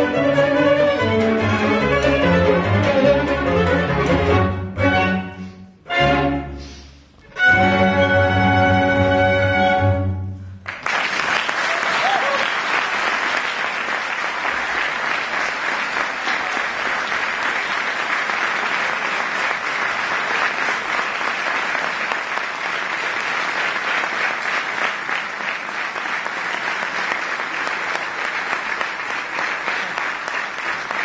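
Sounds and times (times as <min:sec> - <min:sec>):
audience applauding: 0:10.6 - 0:31.0.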